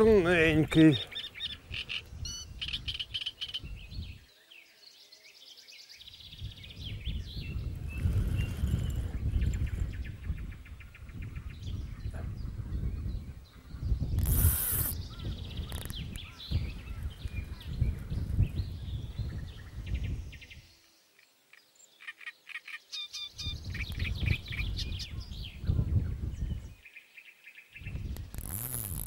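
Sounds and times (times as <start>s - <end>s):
birds chirping and calling: 0.0s - 4.2s, 6.0s - 26.9s
wind on microphone: 0.0s - 4.3s, 6.2s - 20.7s, 23.4s - 26.8s, 27.8s - 29.0s
short hiss: 14.2s - 15.0s.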